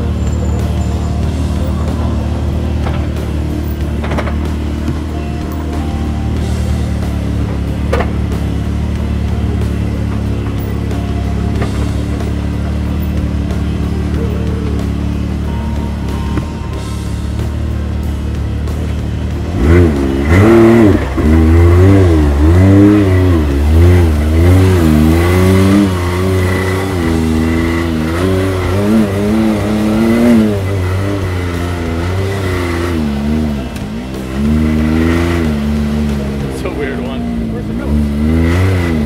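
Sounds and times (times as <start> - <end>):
engine revving: 0.0 - 39.0.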